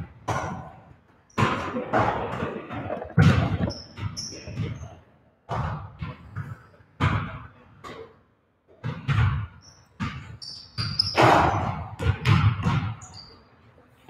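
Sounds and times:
basketballs bouncing on gym floor: 0.0 - 8.1, 8.7 - 13.4
sneaker squeaks: 3.2 - 5.1, 8.8 - 13.8.

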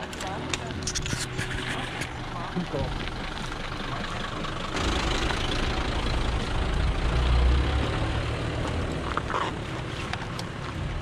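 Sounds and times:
off-road vehicle engine running: 0.0 - 11.0.

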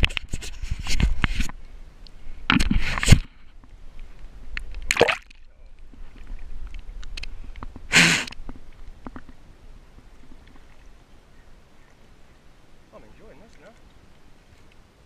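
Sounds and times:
paddle strokes splashing water: 2.2 - 15.0
small water drips and clicks: 3.6 - 15.0.

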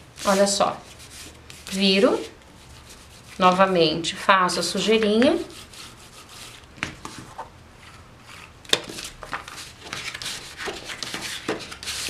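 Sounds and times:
cardboard pieces handled on table: 6.5 - 12.0
glue roller rubbing: 7.8 - 12.0.

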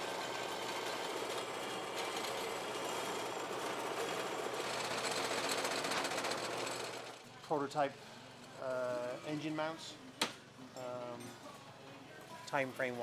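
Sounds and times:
bandsaw cutting metal: 0.0 - 7.1.

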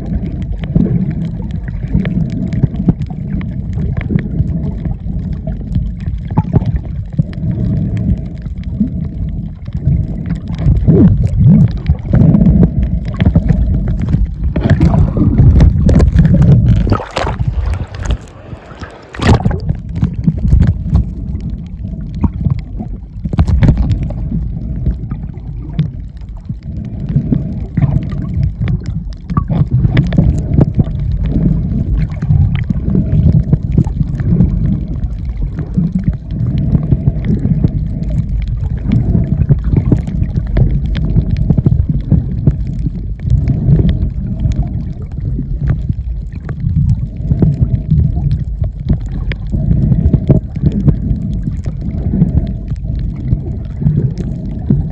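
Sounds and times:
clicks and crackles: 0.0 - 54.9
underwater churning rumble: 0.0 - 54.9.

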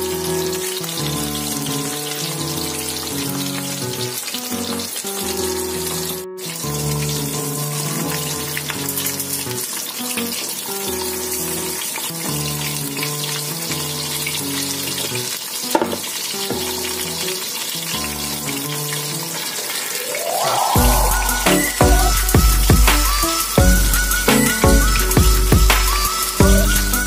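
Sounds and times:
fish sizzling in hot oil: 0.0 - 27.0
background music with bass line: 20.8 - 27.0.

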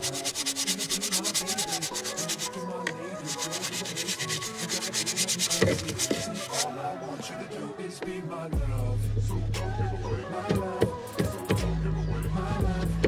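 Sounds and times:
brush scrubbing pedal: 0.0 - 2.6, 3.2 - 6.7
faint background music: 0.0 - 13.0.

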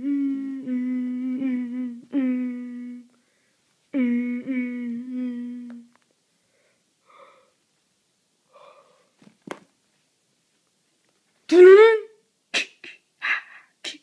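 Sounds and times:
person humming low note: 0.0 - 3.1, 4.0 - 5.9
faint breathy sounds: 0.0 - 7.7, 8.4 - 9.2, 12.6 - 14.0.

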